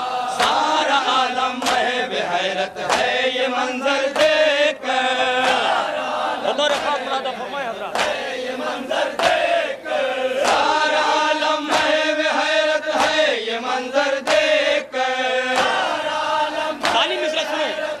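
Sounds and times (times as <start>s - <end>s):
men chanting in unison: 0.0s - 18.0s
rhythmic chest-beating: 0.0s - 18.0s.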